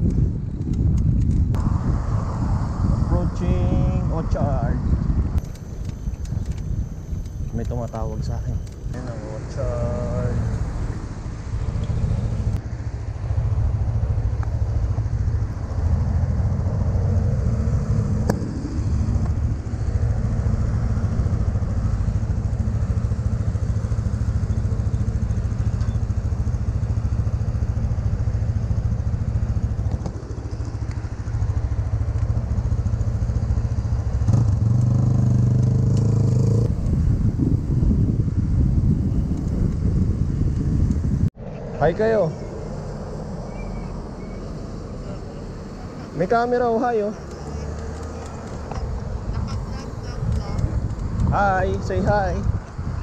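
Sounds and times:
traffic noise: 0:00.0 - 0:53.0
wind buffeting microphone: 0:00.0 - 0:53.0
steady pitched drone: 0:05.4 - 0:34.3, 0:41.1 - 0:52.2.

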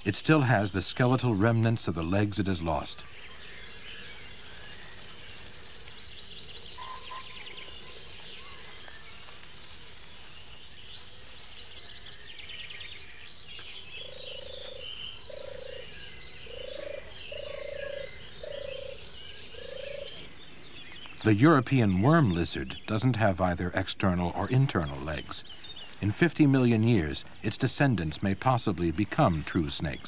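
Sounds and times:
faint high chirping: 0:00.0 - 0:22.9.

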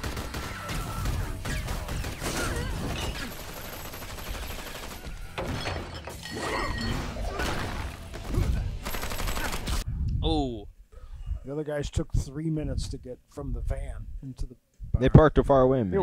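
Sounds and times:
gunfire bursts: 0:00.0 - 0:05.4, 0:07.9 - 0:09.8
crashing shattering impacts: 0:05.3 - 0:08.4.

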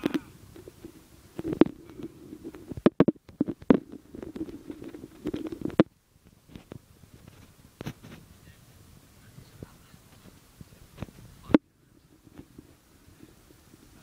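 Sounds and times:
irregular knocks and clicks: 0:00.0 - 0:05.9
microphone handling rumble: 0:00.0 - 0:14.0.

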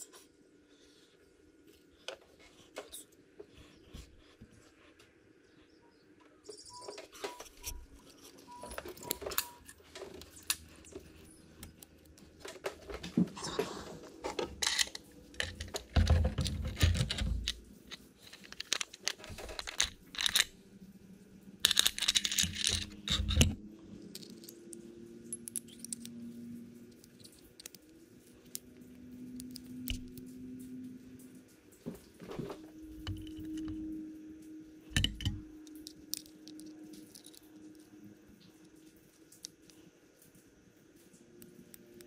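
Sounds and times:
small metal parts clinking: 0:14.5 - 0:20.6, 0:21.6 - 0:26.1, 0:33.0 - 0:33.9, 0:34.9 - 0:37.7.

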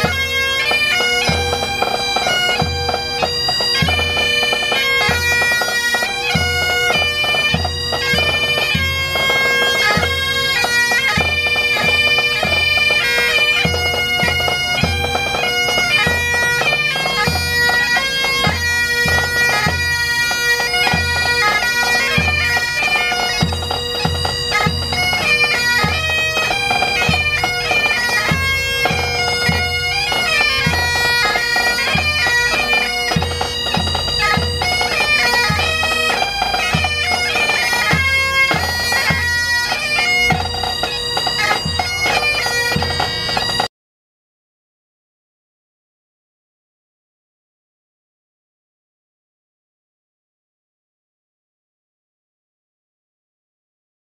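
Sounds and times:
bagpipes playing a tune: 0:00.0 - 0:43.7.

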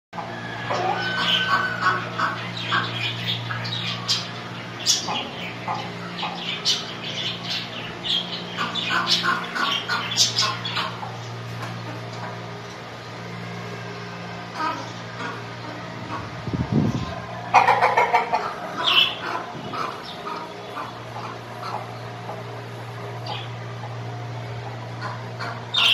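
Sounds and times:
chickens squawking and clucking: 0:00.2 - 0:25.9
steady low hum: 0:00.2 - 0:25.9
budgerigars chirping: 0:01.0 - 0:11.3, 0:17.6 - 0:22.0, 0:25.0 - 0:25.9.

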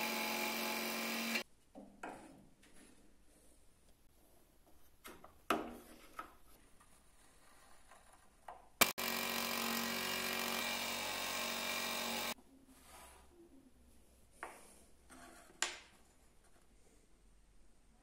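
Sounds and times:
scroll saw cutting wood: 0:00.0 - 0:01.4, 0:08.8 - 0:12.4.

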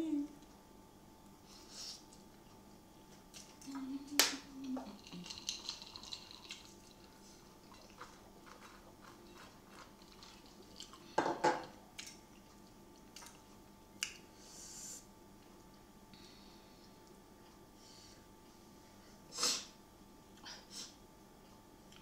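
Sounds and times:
person humming: 0:00.0 - 0:00.4, 0:03.6 - 0:05.3.

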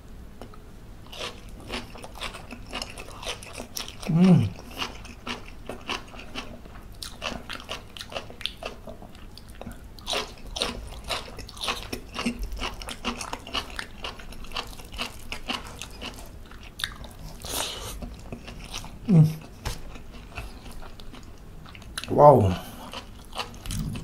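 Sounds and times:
person chewing crunchy food: 0:01.1 - 0:24.0.

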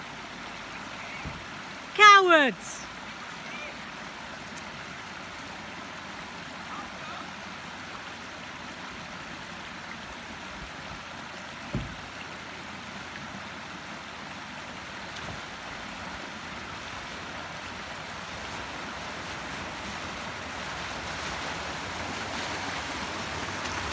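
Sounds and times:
water rushing over weir: 0:00.0 - 0:23.9
wheels splashing through water: 0:00.0 - 0:23.9
low thump: 0:11.7 - 0:12.1.

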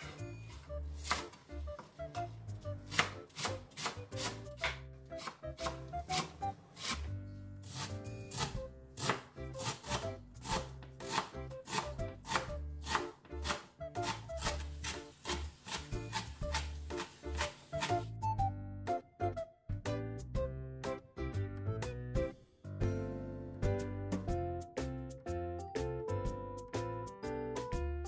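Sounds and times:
knife chopping on cutting board: 0:01.0 - 0:01.9, 0:02.9 - 0:18.1.

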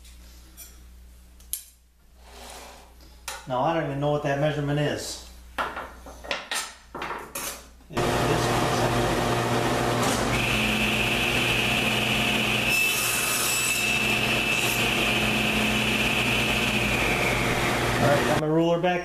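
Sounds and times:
saw blade cutting wood: 0:08.0 - 0:18.4
table saw humming: 0:08.0 - 0:18.4.

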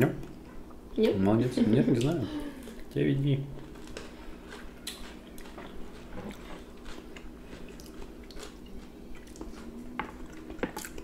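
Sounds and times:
chewing and lip smacking: 0:03.8 - 0:11.0.

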